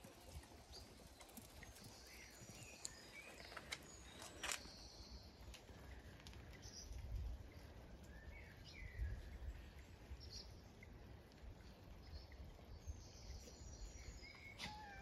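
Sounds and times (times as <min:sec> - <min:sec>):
low rumble on microphone: 0:05.3 - 0:14.3.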